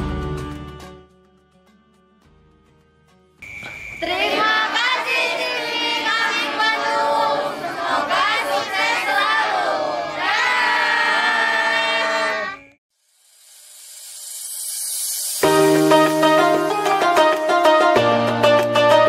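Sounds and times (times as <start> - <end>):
group shouting and cheering: 4.0 - 12.7
faint rising hiss: 13.0 - 16.9.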